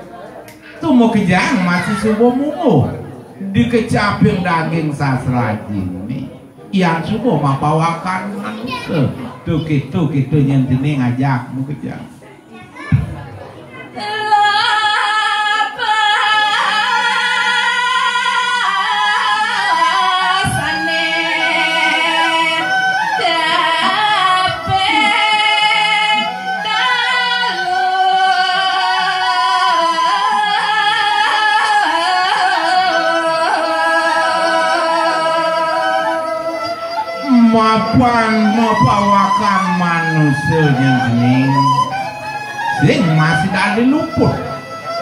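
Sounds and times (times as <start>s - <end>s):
woman singing unaccompanied: 14.0s - 39.4s.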